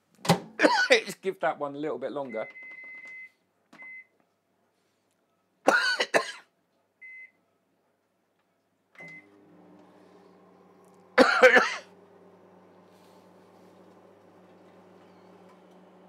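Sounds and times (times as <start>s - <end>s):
man clearing his throat: 0.6s - 1.1s, 5.7s - 6.5s, 11.2s - 11.9s
microwave keypad beeping: 2.3s - 4.1s, 9.0s - 9.4s
microwave humming: 9.0s - 16.0s.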